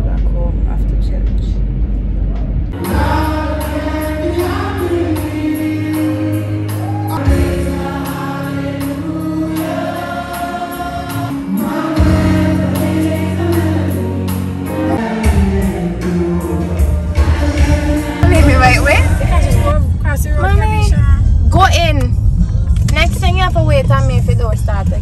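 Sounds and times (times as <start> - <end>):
gospel band with singers: 2.8 - 20.7.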